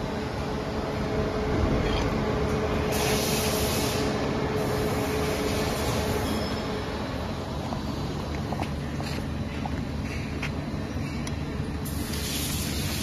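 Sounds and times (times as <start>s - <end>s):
cooling fan rushing: 0.0s - 13.0s
higher hiss: 2.8s - 6.3s.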